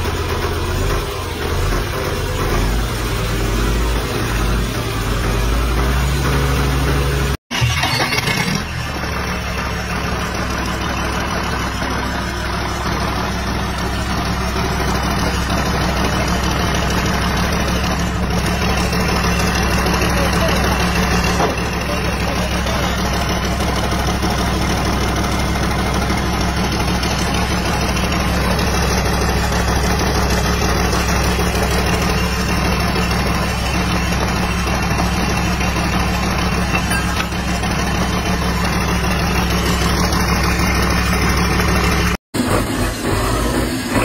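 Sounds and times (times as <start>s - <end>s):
diesel engine idling: 0.0s - 7.4s, 8.5s - 44.0s
different engine running: 0.0s - 44.0s.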